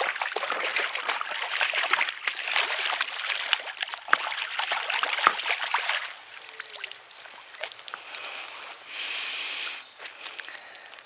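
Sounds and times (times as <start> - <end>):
fish thrashing and splashing: 0.0 - 8.6
water dripping and sloshing: 0.0 - 8.9
short steady hiss: 7.9 - 11.0.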